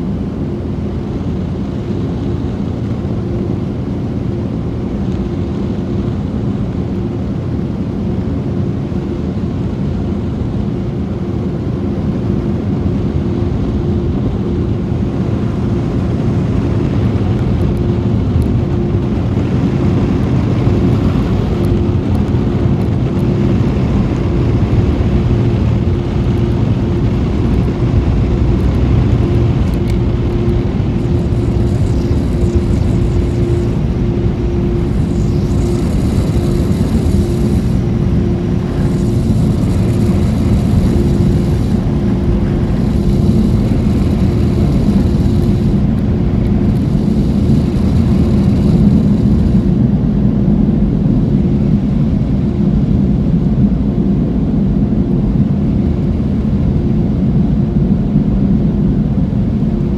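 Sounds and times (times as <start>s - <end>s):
faint steady hum: 0.0s - 59.9s
car idling rumble: 26.6s - 49.7s.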